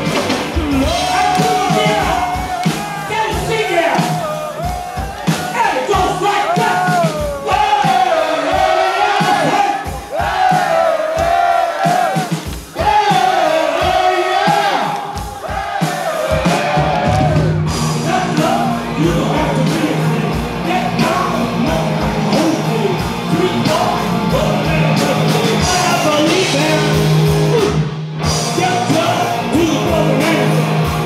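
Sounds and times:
loud rock music with vocals: 0:00.0 - 0:31.0.

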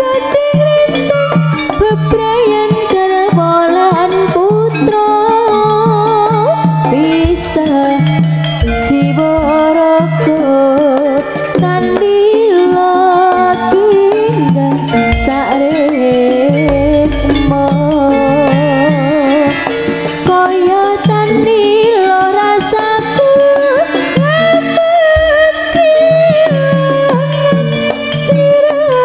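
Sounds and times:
gamelan lead melody: 0:16.5 - 0:19.5
hand drum strokes: 0:16.6 - 0:19.5
deep ringing low stroke: 0:16.6 - 0:19.6.

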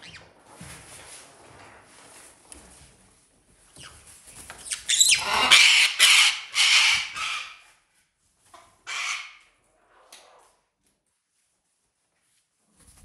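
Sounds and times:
parrots squawking loudly: 0:04.8 - 0:07.7, 0:08.8 - 0:09.4.

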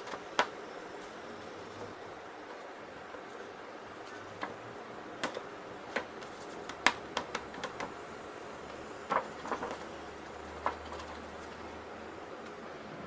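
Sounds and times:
steady low hiss: 0:00.0 - 0:13.0
thin sheet panel clicking and knocking: 0:05.2 - 0:08.0.

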